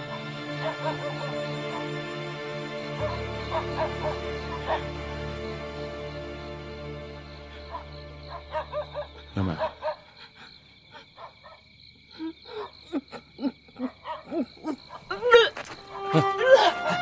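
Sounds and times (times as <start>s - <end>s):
background music: 0.0s - 10.0s, 15.2s - 17.0s.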